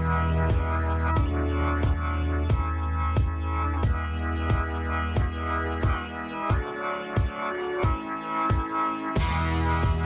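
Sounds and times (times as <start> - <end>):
electronic music with steady beat: 0.0 - 10.0.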